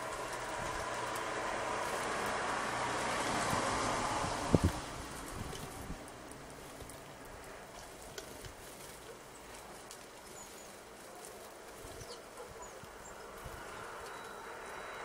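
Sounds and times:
bird chirps: 11.9s - 15.0s.

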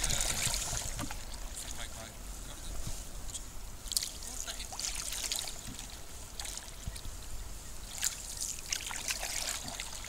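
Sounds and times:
water trickling off paddle: 0.0s - 1.8s, 7.8s - 10.0s
canoe paddle strokes in water: 0.0s - 3.2s, 3.9s - 10.0s.

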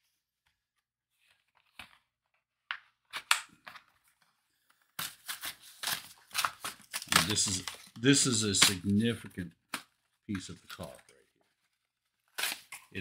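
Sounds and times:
cardboard packaging rustling: 3.7s - 13.0s.

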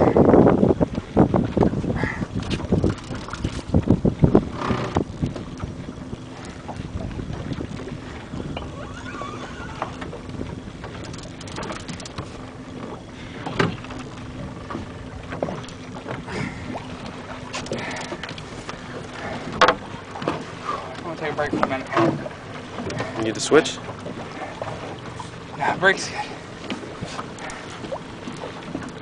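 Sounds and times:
boat engine idling: 0.0s - 29.0s
water: 0.0s - 29.0s
wind: 0.0s - 29.0s
sharp knocks aboard: 1.5s - 5.7s, 9.8s - 25.4s.

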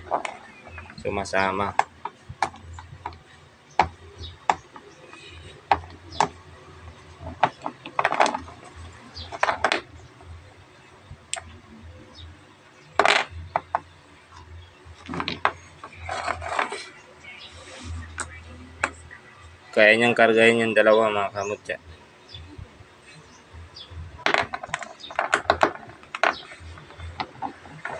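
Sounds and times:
stones knocking on tabletop: 7.2s - 8.6s, 9.3s - 9.9s, 13.0s - 13.8s, 15.0s - 16.7s, 24.2s - 27.9s
stones clacking against metal magnet: 7.2s - 9.9s, 13.0s - 13.8s, 15.0s - 16.9s, 24.2s - 27.9s.

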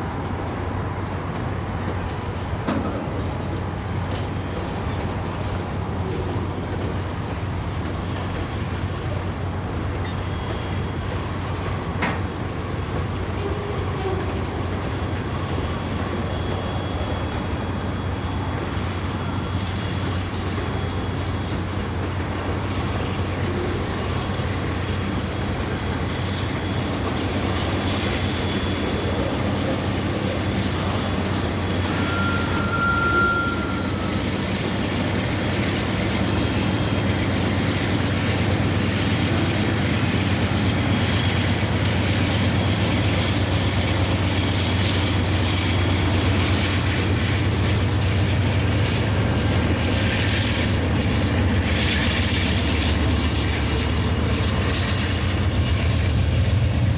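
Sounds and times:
diesel locomotive hum: 0.0s - 56.9s
train cars rumbling: 0.0s - 56.9s
train clatter: 0.0s - 56.9s
high squeal: 15.0s - 21.6s, 27.8s - 34.9s.

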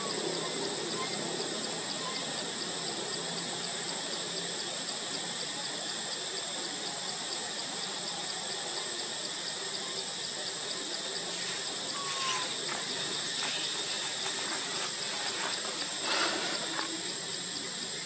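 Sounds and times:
high insect drone: 0.0s - 18.0s
even hiss: 7.8s - 18.0s.

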